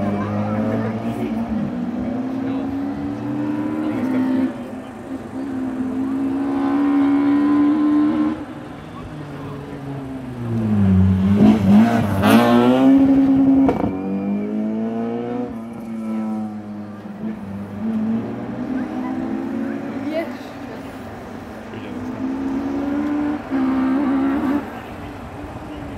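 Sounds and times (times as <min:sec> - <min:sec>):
rally car engine revving: 0:00.0 - 0:25.4.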